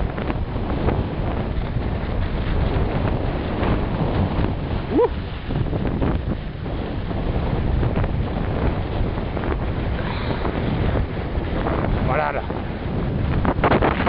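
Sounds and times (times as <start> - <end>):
wind on microphone: 0.0 - 14.0.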